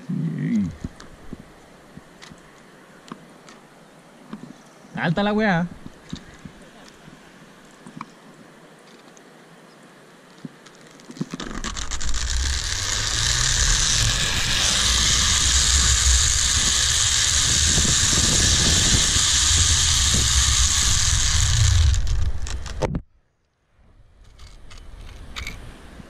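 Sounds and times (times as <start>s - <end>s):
zip-line pulleys whirring on cable: 11.3s - 22.8s
wind on microphone: 11.5s - 23.0s.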